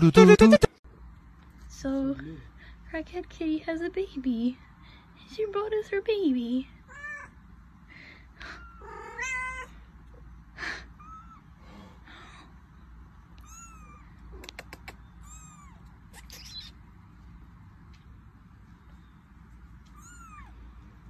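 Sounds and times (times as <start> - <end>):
cat meowing: 8.6 - 9.8, 13.4 - 14.1, 15.2 - 16.7, 19.9 - 20.6.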